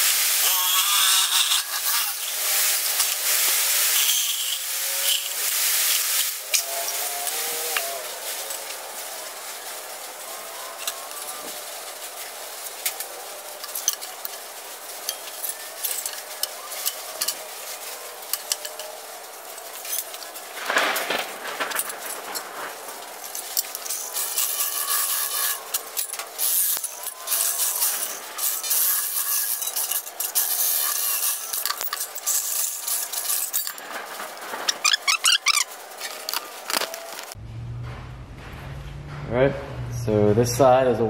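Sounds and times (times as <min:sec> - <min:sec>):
loud rasping scrape: 0:00.4 - 0:08.8, 0:19.8 - 0:37.4
sheet steel scraping on bench: 0:00.4 - 0:09.4, 0:15.1 - 0:37.4.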